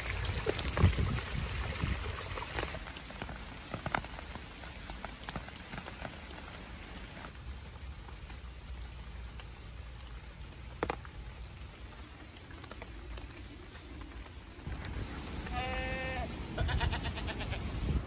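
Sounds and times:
rain falling: 0.0s - 16.6s.

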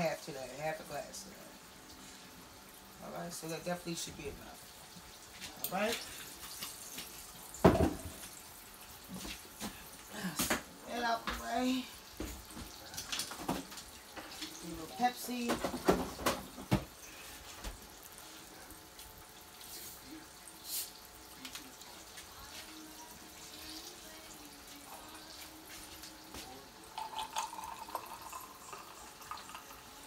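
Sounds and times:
meat sizzling in a skillet: 0.0s - 16.3s, 16.9s - 30.0s
soda poured into a glass: 26.9s - 30.0s.

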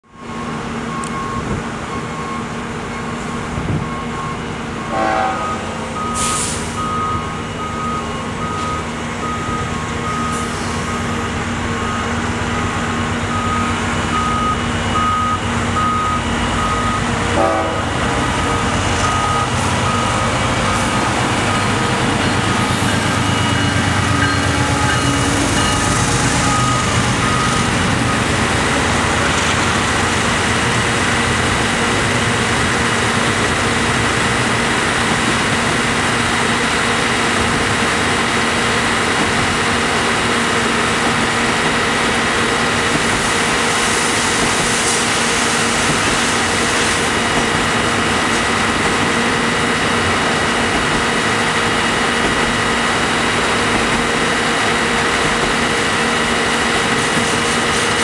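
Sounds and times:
truck backup alarm beeping: 0.1s - 29.7s, 40.7s - 41.3s
freight train rumble and wheel hiss: 0.1s - 58.0s
diesel engine running: 6.0s - 43.7s.

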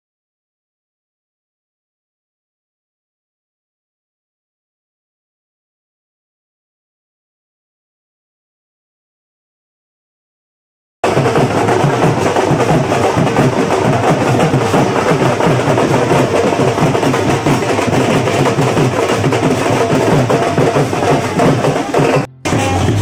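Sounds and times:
loud music with fast drum beat: 11.0s - 23.0s.

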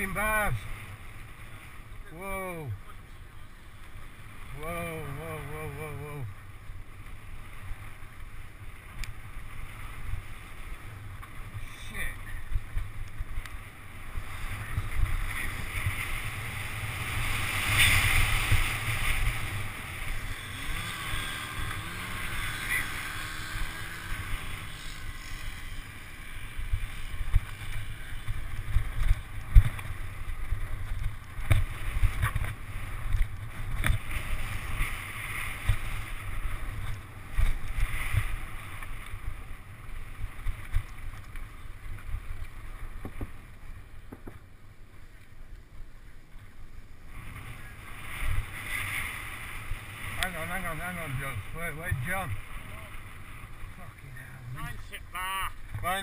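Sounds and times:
wind buffeting microphone: 9.7s - 44.4s.

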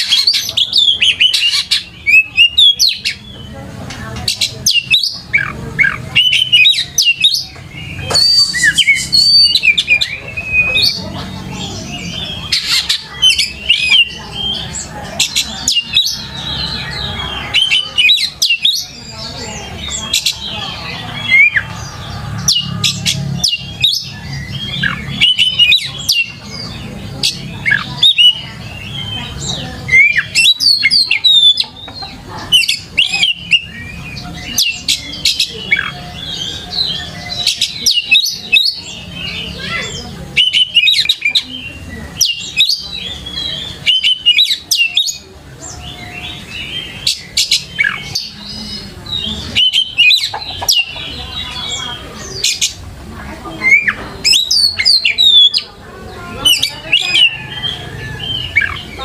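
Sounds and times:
bird singing whistles and chirps: 0.0s - 3.5s, 4.4s - 11.0s, 22.4s - 31.6s, 32.5s - 52.8s, 53.6s - 55.7s.

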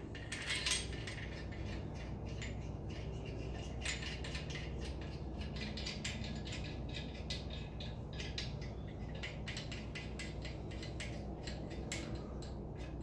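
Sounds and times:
metallic clicks of hand tools: 0.2s - 13.0s.

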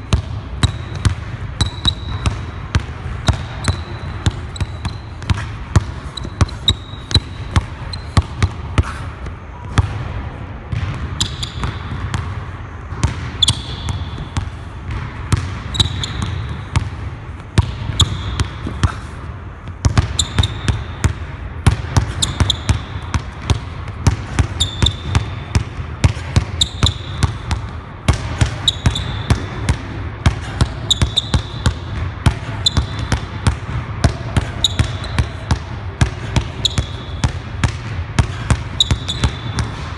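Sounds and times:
sneaker squeaks on floor: 0.6s - 2.6s, 3.2s - 9.0s, 11.2s - 11.9s, 13.4s - 14.4s, 15.7s - 16.7s, 18.0s - 18.4s, 20.0s - 20.9s, 22.1s - 23.0s, 24.4s - 25.4s, 26.5s - 27.4s, 28.4s - 29.5s, 30.7s - 31.7s, 32.5s - 33.1s, 34.5s - 35.5s, 36.5s - 37.3s, 38.7s - 39.7s
basketball bouncing on hardwood: 10.7s - 12.3s, 12.9s - 17.0s.

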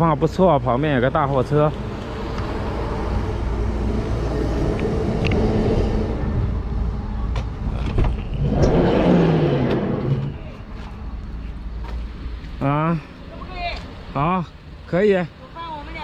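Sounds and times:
sliding door opening: 7.7s - 10.4s.

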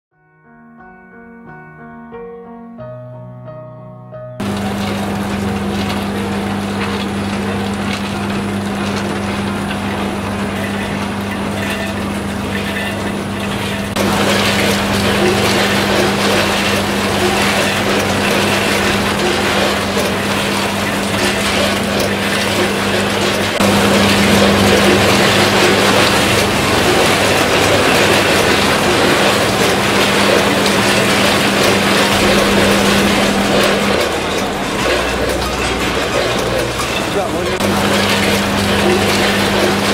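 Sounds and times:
machinery humming: 4.4s - 39.9s
mechanical rattle and hiss: 4.4s - 39.9s.

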